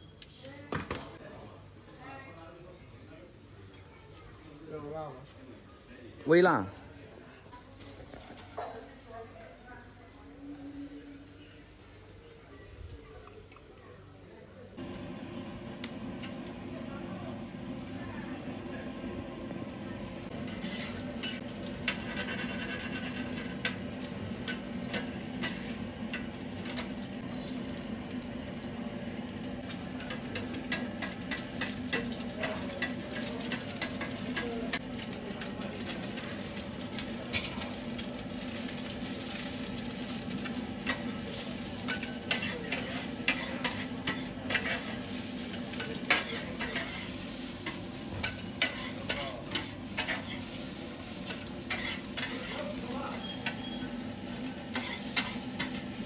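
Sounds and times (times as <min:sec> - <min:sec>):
food sizzling on a griddle: 0:14.8 - 0:56.0
metal spatulas scraping and clacking: 0:20.3 - 0:26.9, 0:41.8 - 0:50.6, 0:51.2 - 0:53.8, 0:54.7 - 0:55.8.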